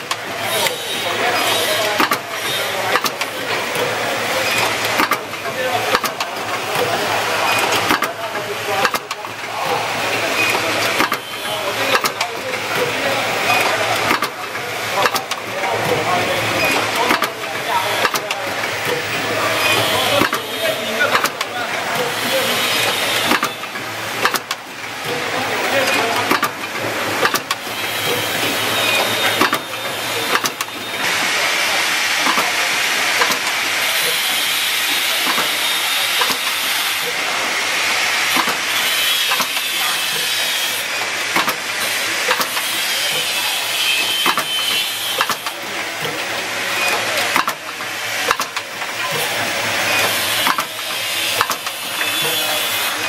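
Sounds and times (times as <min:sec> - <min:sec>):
machine clicks and knocks: 0:00.0 - 0:00.8, 0:01.4 - 0:31.3, 0:32.2 - 0:32.6, 0:33.2 - 0:34.2, 0:35.2 - 0:35.5, 0:36.2 - 0:37.4, 0:38.3 - 0:38.6, 0:39.2 - 0:40.4, 0:41.3 - 0:43.4, 0:44.0 - 0:52.4.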